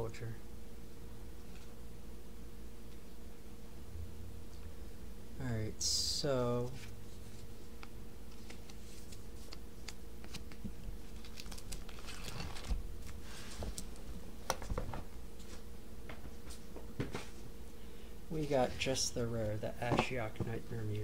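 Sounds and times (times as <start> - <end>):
faint steady hum: 0.0 - 21.0
plastic binder pages rustling: 6.8 - 15.6.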